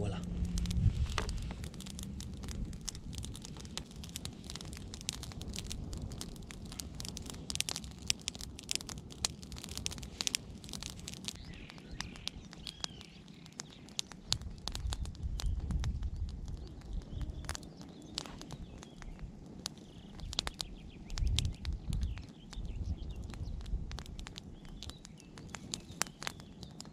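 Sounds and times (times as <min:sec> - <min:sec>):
campfire crackling: 0:00.0 - 0:26.9
sharp pops and snaps: 0:00.0 - 0:26.9.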